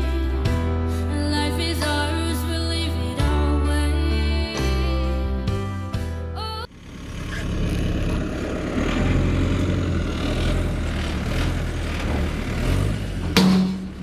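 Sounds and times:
vehicle engine running: 6.6 - 14.0.

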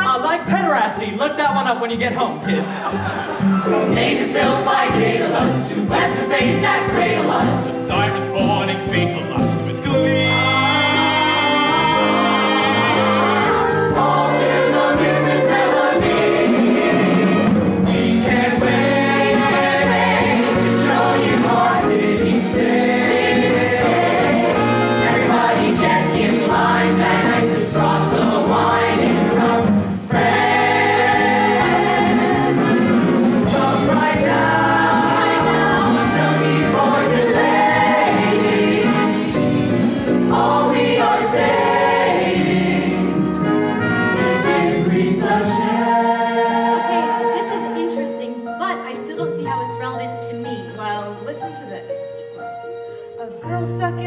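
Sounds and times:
chorus singing: 2.6 - 48.4
band playing with drum beat: 3.7 - 45.9.

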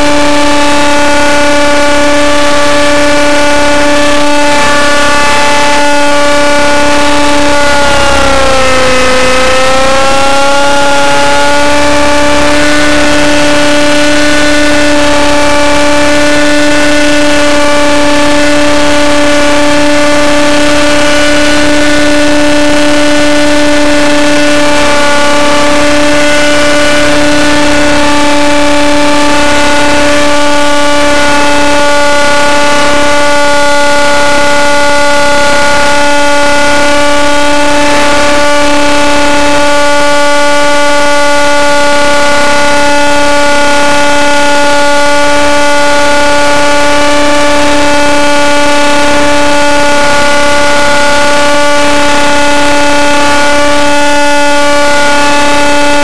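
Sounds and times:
rc helicopter engine whine: 0.0 - 56.0.

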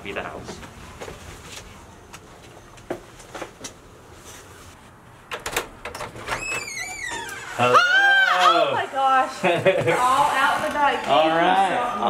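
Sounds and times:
door hinge squeak: 6.2 - 7.8.

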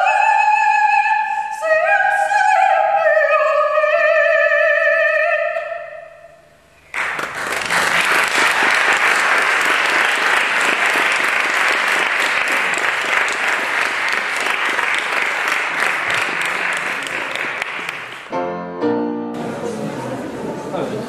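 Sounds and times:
audience applauding: 6.9 - 18.3.

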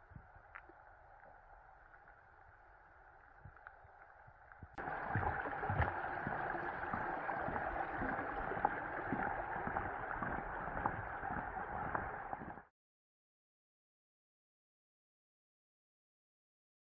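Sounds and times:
rain pattering: 0.0 - 12.6.

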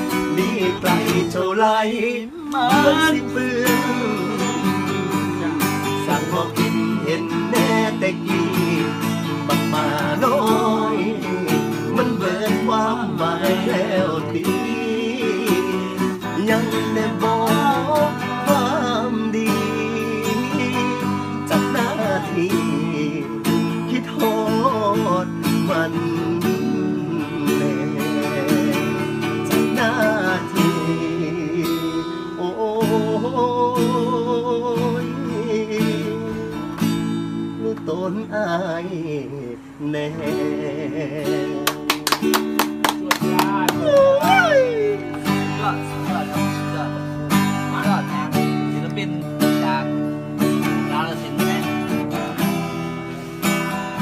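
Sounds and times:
acoustic guitar strumming: 0.0 - 54.0
man singing: 0.0 - 54.0.

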